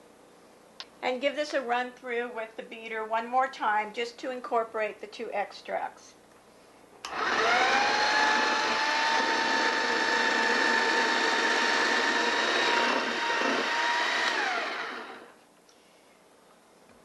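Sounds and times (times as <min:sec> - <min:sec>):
electric hand mixer whining: 0:07.1 - 0:15.4.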